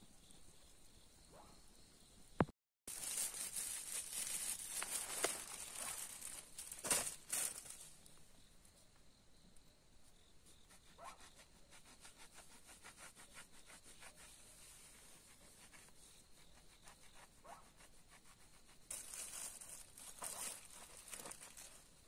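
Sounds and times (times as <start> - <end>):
rustling crinkle: 2.9 - 8.2, 18.8 - 22.0.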